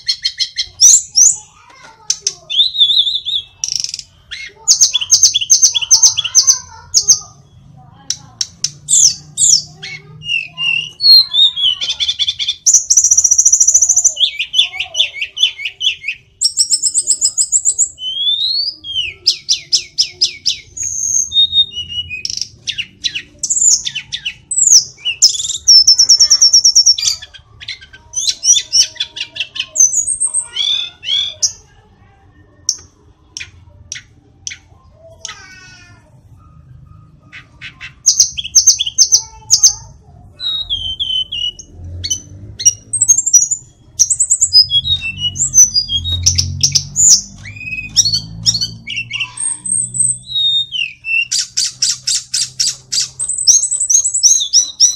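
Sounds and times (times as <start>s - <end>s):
bird singing whistles and trills: 2.5s - 7.1s, 8.9s - 31.5s, 40.4s - 54.9s.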